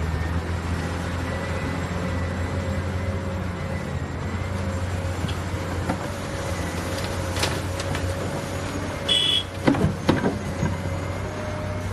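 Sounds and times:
heavy machinery engine running: 0.0s - 11.9s
short high beep: 9.1s - 9.5s.

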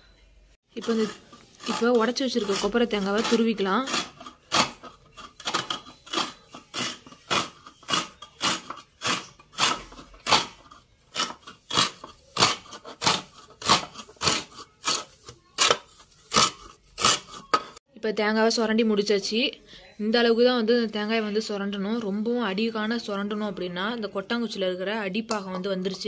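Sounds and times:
coconut rasping on scraper blade: 0.8s - 17.8s.

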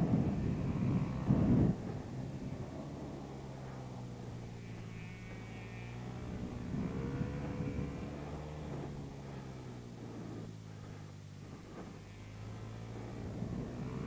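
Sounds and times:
motorcycle engine: 0.0s - 14.0s.

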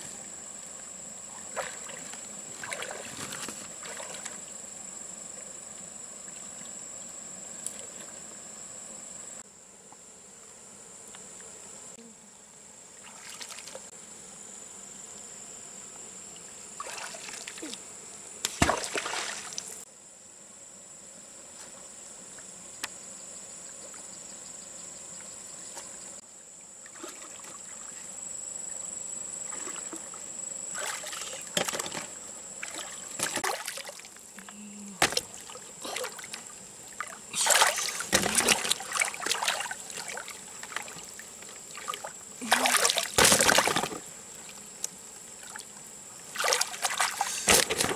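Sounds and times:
water sloshing and splashing: 1.4s - 4.5s, 16.8s - 17.8s, 18.5s - 19.8s, 26.9s - 27.9s, 29.4s - 30.1s, 30.7s - 34.2s, 35.0s - 44.0s, 46.3s - 47.9s
high-pitched insect drone: 32.6s - 43.1s.

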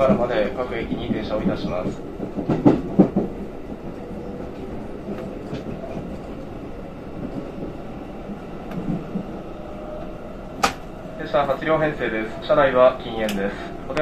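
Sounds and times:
train wheels clunking over rails: 0.0s - 6.3s, 10.5s - 11.0s
train rumbling: 0.0s - 14.0s.

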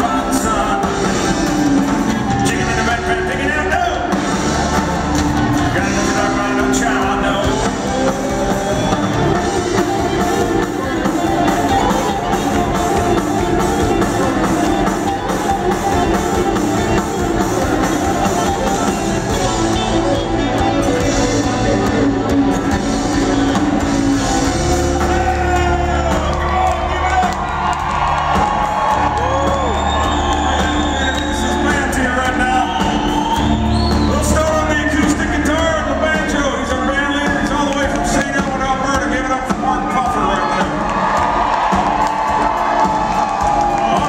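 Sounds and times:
drums: 0.0s - 44.0s
electric guitars: 0.0s - 44.0s
live rock band playing: 0.0s - 44.0s.

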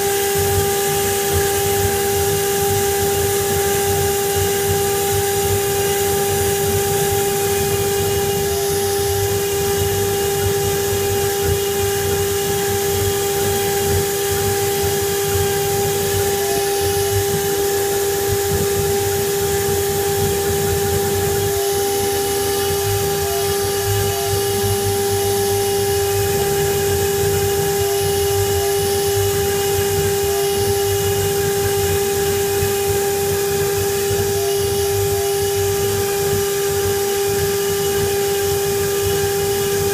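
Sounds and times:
router spindle whining: 0.0s - 39.9s.

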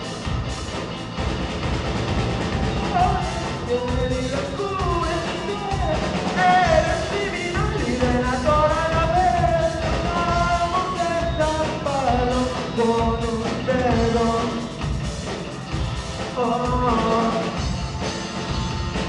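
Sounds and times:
drum kit: 0.0s - 19.0s
electric guitars: 0.0s - 19.0s
person singing: 2.8s - 14.8s, 16.3s - 17.8s.

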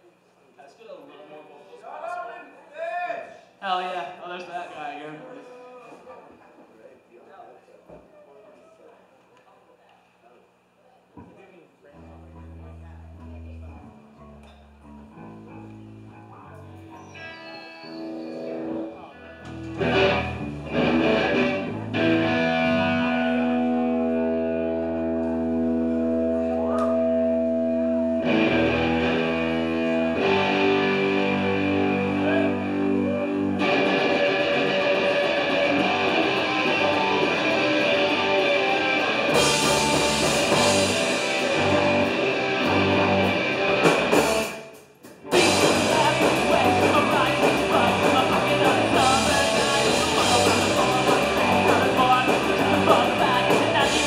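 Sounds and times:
electric guitars playing chords: 18.0s - 54.0s
punk band playing: 19.3s - 54.0s
drums and crashing cymbals: 39.2s - 54.0s.

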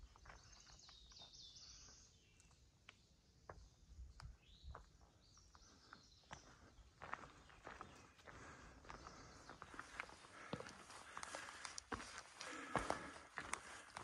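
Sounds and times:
bird chirps: 0.0s - 8.3s, 8.9s - 10.2s
footsteps on forest trail: 0.0s - 14.0s.

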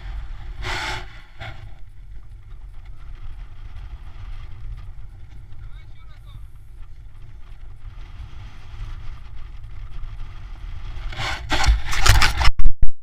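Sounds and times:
rushing air: 0.0s - 2.1s, 7.4s - 12.4s
wind buffeting microphone: 0.0s - 12.5s.

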